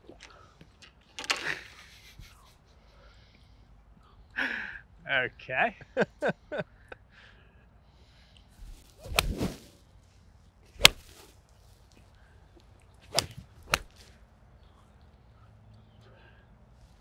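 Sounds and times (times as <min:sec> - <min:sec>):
golf club striking ball: 0:08.6 - 0:09.6, 0:10.8 - 0:11.2, 0:13.1 - 0:14.0
swing swish: 0:08.6 - 0:09.8, 0:10.8 - 0:11.3, 0:13.0 - 0:14.1.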